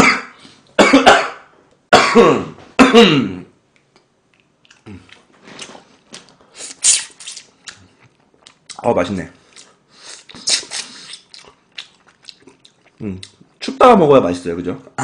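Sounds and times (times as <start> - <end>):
sucking and chewing: 3.7 - 8.8, 9.4 - 13.7
sharp slurp: 6.6 - 7.8, 9.5 - 13.0.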